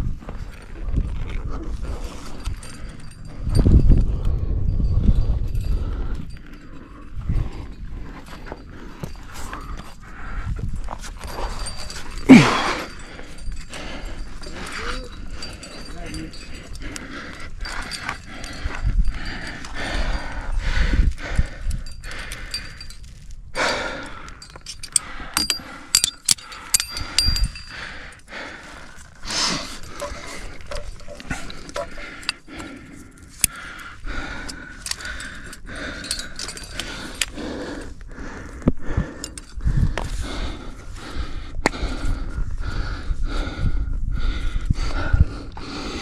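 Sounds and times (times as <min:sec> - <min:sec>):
metal climbing gear clinking: 0:00.0 - 0:46.0
person breathing heavily: 0:01.4 - 0:46.0.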